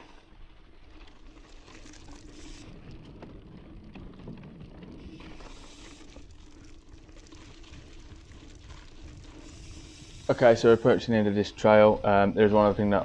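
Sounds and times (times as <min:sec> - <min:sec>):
bike rattles and clicks: 0:00.0 - 0:13.0
bike tyres on dirt trail: 0:00.0 - 0:13.0.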